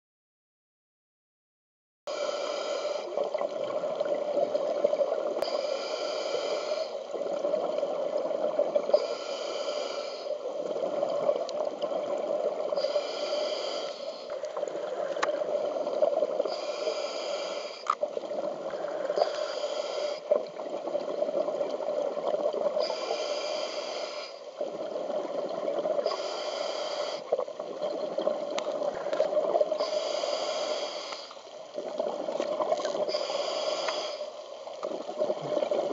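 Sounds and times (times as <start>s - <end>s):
diver breathing through regulator: 2.1s - 3.1s, 5.4s - 7.1s, 8.9s - 10.4s, 12.8s - 14.4s, 16.4s - 18.0s, 18.8s - 20.3s, 22.8s - 24.5s, 26.0s - 27.4s, 29.7s - 31.4s, 33.0s - 34.4s
steady underwater hum: 2.1s - 35.9s
bubbling and gurgling: 2.9s - 5.7s, 6.7s - 9.2s, 10.3s - 13.3s, 14.2s - 17.2s, 17.8s - 23.6s, 24.5s - 30.6s, 31.4s - 33.7s, 34.4s - 35.9s.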